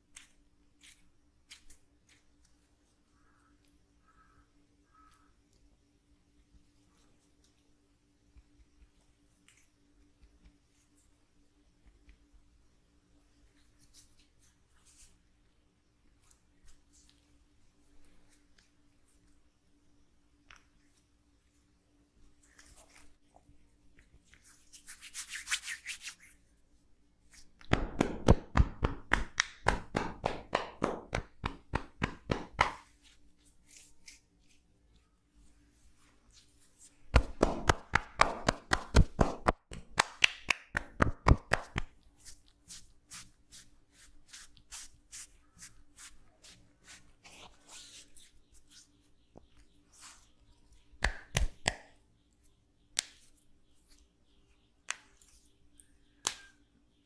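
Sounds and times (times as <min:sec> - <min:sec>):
hands rubbing skin: 0:23.9 - 0:26.4, 0:28.9 - 0:34.7, 0:35.8 - 0:49.0
hands slapping on arm: 0:27.3 - 0:32.9, 0:37.1 - 0:42.0, 0:51.0 - 0:51.9.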